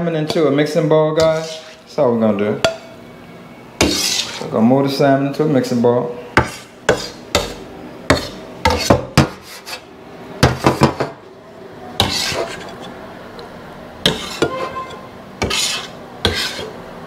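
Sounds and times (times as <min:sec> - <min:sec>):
knife blade scraping: 0:01.2 - 0:01.9, 0:03.8 - 0:04.5, 0:06.4 - 0:09.8, 0:12.0 - 0:12.9, 0:14.0 - 0:16.8.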